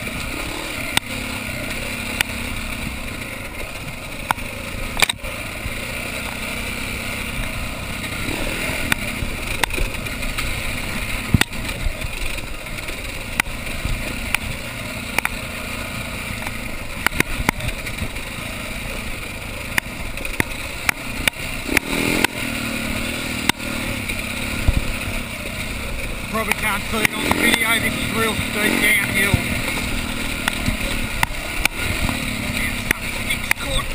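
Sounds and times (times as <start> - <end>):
bike clattering over bumps: 0.0 - 33.9
dirt bike engine running: 0.0 - 33.9.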